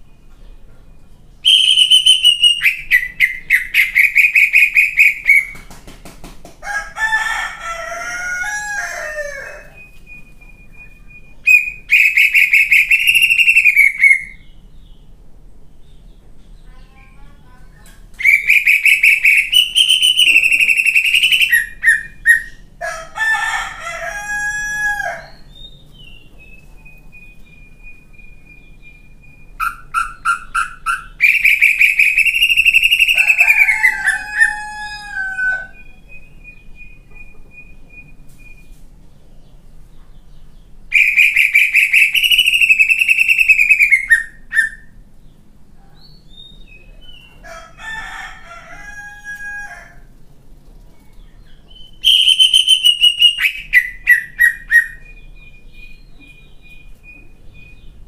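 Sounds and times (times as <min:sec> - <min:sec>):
bird singing harsh phrases: 0:00.0 - 0:05.6, 0:09.6 - 0:22.8, 0:25.1 - 0:47.4, 0:51.0 - 0:58.0
bird whistled notes: 0:01.4 - 0:05.6, 0:09.6 - 0:14.4, 0:18.2 - 0:22.6, 0:40.9 - 0:45.0, 0:51.7 - 0:57.9.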